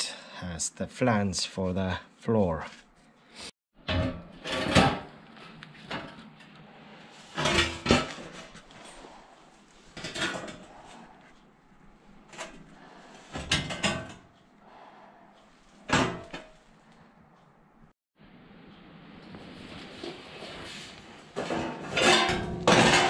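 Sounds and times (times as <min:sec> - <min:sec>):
thin metal clanks and scrapes: 0:03.8 - 0:09.3, 0:09.9 - 0:11.1, 0:12.3 - 0:14.3, 0:21.4 - 0:23.0.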